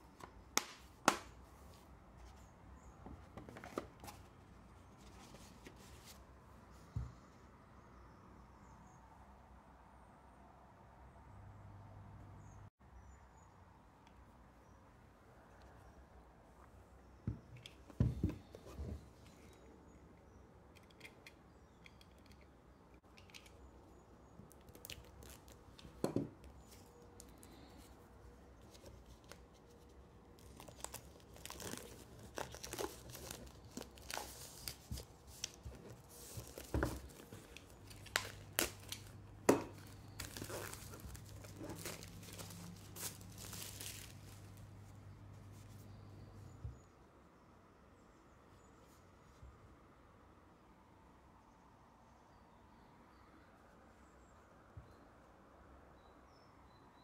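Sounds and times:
plastic wrap crinkling and tearing: 30.4 - 44.6.

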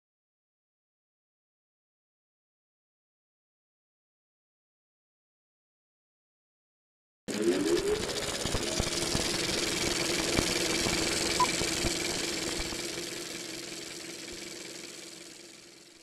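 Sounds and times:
noisy drone: 7.3 - 16.0.

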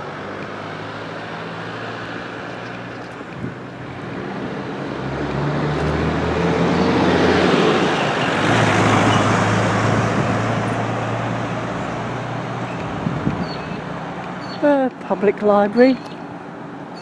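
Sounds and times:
vehicle driving past: 3.6 - 14.6.

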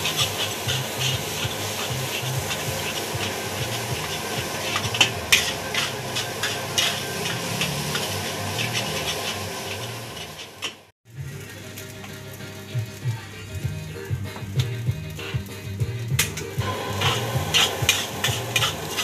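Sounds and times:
metal spatula scraping a wok: 0.0 - 10.9, 16.4 - 19.0
rice sizzling in a wok: 0.0 - 19.0.

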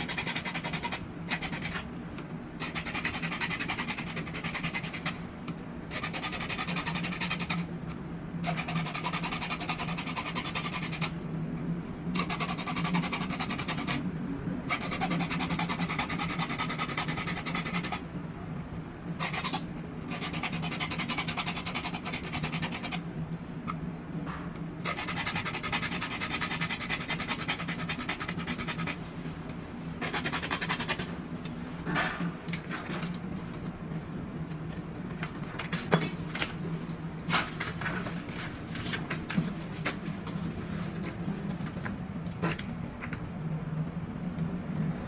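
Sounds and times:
hacksaw sawing plastic pipe: 0.0 - 1.8, 2.6 - 5.2, 5.9 - 7.7, 8.4 - 11.2, 12.2 - 14.0, 14.7 - 18.0, 19.2 - 23.0, 24.8 - 29.0, 30.0 - 31.1.

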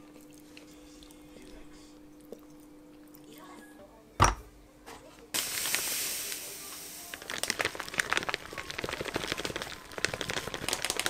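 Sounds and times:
plastic bag crinkling: 5.4 - 11.0
sugar pouring into bowl: 5.4 - 11.0.

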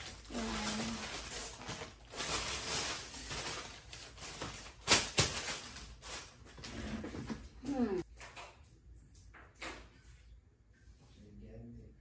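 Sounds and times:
plastic bags rustling: 0.0 - 8.0.

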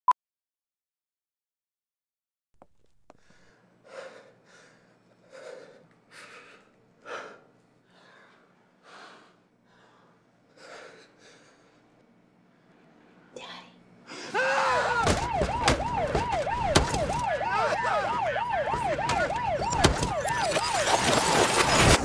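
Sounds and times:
low room hum: 2.9 - 15.0
man sobbing: 14.1 - 15.3, 17.3 - 19.6.

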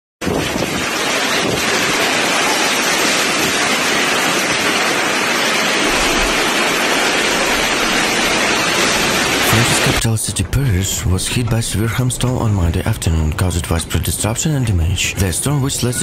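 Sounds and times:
hail and wind roaring: 0.2 - 16.0.

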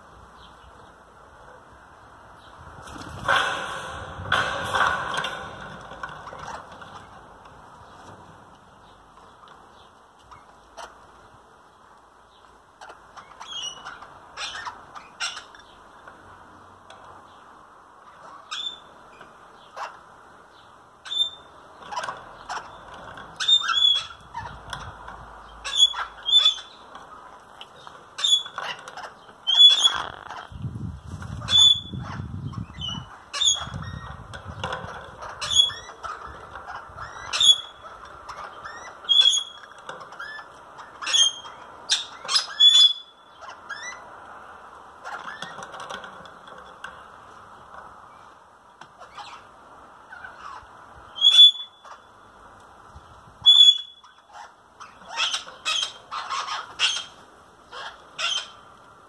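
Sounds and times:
parakeets squawking: 21.0 - 30.6, 31.3 - 44.1, 53.4 - 58.7.

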